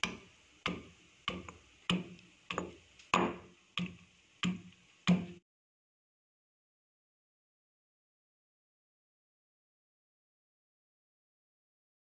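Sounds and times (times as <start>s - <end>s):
stone pestle pounding in mortar: 0.0s - 5.4s.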